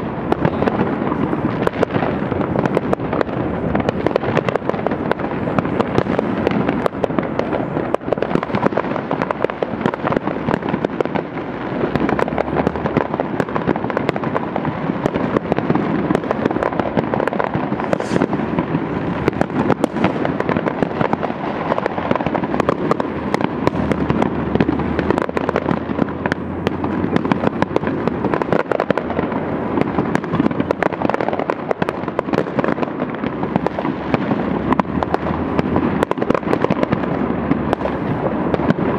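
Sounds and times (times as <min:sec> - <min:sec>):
fireworks and firecrackers bangs: 0:00.0 - 0:38.9.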